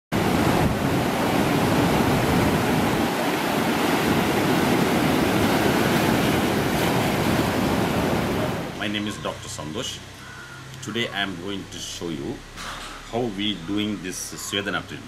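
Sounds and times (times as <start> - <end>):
surf crashing over rocks: 0.2 - 8.9.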